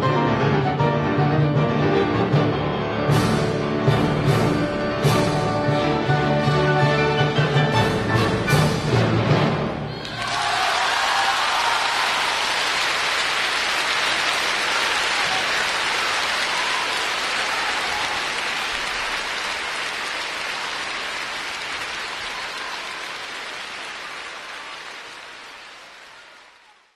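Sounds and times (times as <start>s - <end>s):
audience applauding: 9.9s - 26.9s.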